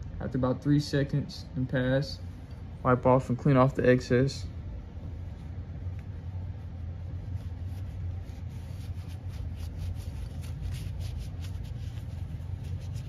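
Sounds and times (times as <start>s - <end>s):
steady low hum: 0.0s - 13.0s
cloth rag wiping metal: 5.0s - 13.0s.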